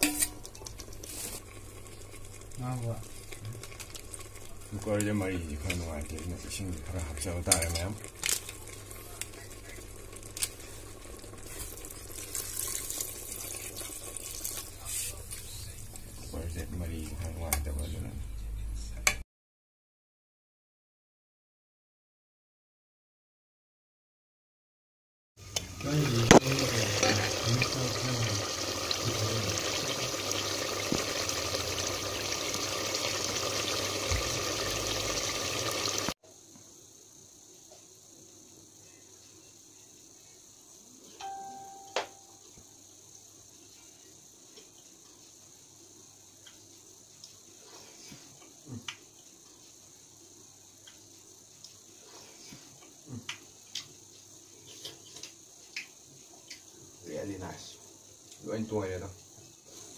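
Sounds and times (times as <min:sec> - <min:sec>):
water splashing into pot: 0:11.4 - 0:14.8, 0:25.6 - 0:36.2.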